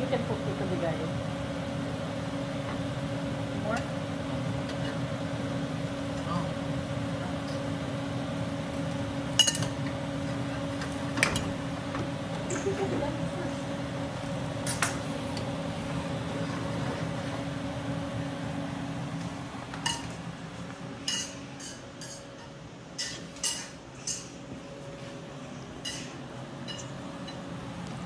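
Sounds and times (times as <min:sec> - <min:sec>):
steady low hum: 0:00.0 - 0:28.0
utensils and dishes clinking: 0:09.3 - 0:09.9, 0:19.8 - 0:20.2, 0:21.0 - 0:24.4, 0:25.8 - 0:27.5.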